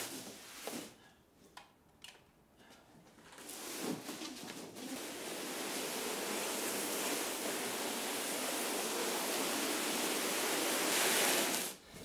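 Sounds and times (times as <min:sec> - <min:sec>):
steady hiss: 0:03.4 - 0:12.0.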